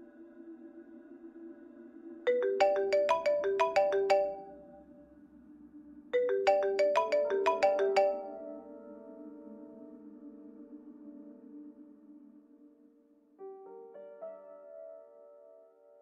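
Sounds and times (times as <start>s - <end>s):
phone ringtone melody: 2.3s - 4.8s, 6.2s - 8.6s.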